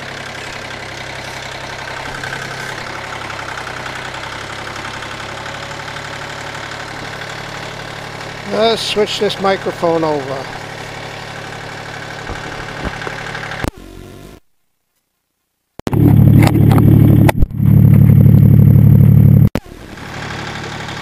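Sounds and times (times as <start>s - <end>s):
tractor engine idling: 0.0s - 13.7s, 15.9s - 21.0s
microphone handling knocks: 12.2s - 13.3s.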